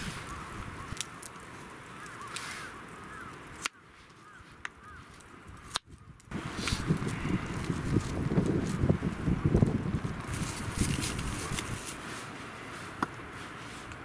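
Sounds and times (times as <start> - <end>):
wind buffeting microphone: 0.0 - 1.0, 5.4 - 12.0.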